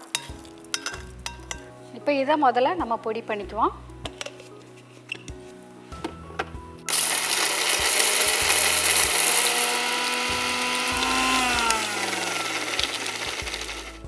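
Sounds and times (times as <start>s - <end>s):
mixer grinder rattling whir: 6.9s - 14.0s.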